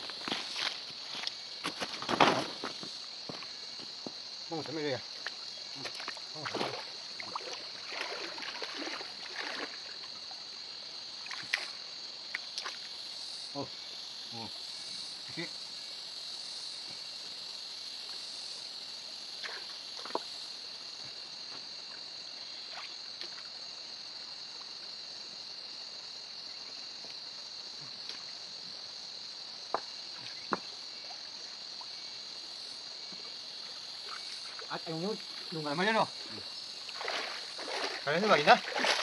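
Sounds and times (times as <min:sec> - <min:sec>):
insects droning: 0:00.0 - 0:39.0
small splashes in water: 0:05.2 - 0:10.2, 0:36.8 - 0:39.0.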